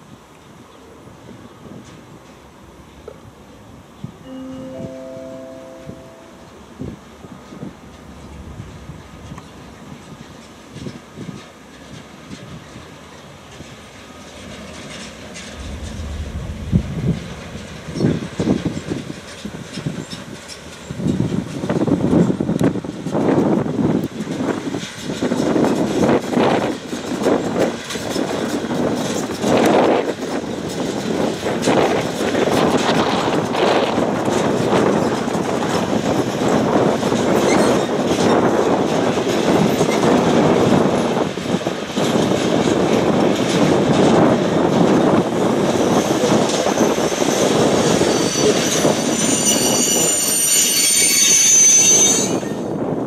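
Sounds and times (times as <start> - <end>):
freight wagons rumbling on rails: 0.0 - 4.2, 4.9 - 53.0
wheel squeal: 37.3 - 38.4, 45.5 - 52.8.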